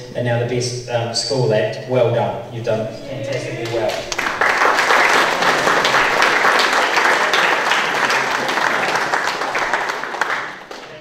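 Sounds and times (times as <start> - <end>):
audience applauding: 3.6 - 11.0.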